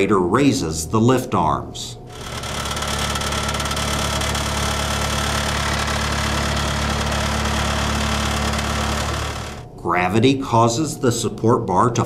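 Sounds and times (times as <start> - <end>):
loader engine running: 2.1 - 9.7.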